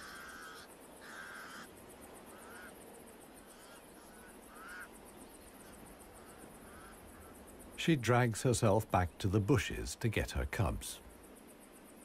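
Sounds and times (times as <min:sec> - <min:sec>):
crows cawing: 0:00.0 - 0:02.8, 0:03.4 - 0:07.6.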